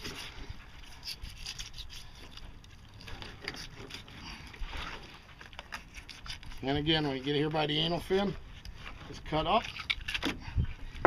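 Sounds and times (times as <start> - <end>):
knife rasping through fish: 0.0 - 4.6, 5.6 - 6.7.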